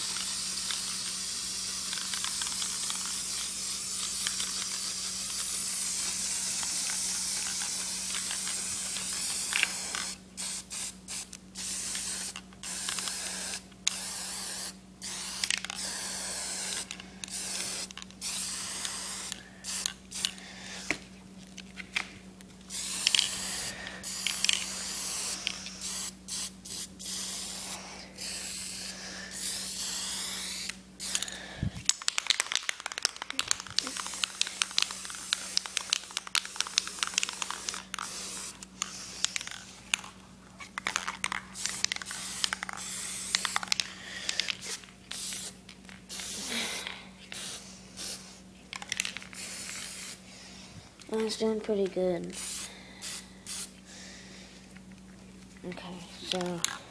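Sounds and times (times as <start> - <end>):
spray can hissing: 0.0 - 21.0, 22.7 - 31.3, 32.1 - 40.0, 40.8 - 43.8, 44.6 - 50.2, 52.4 - 53.7.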